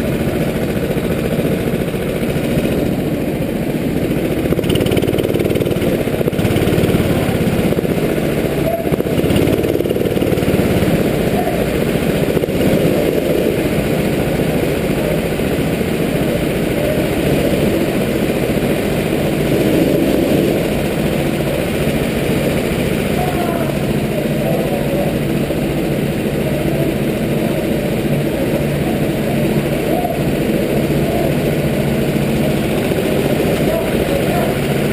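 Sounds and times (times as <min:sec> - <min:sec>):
go-kart engine idling: 0:00.0 - 0:34.9.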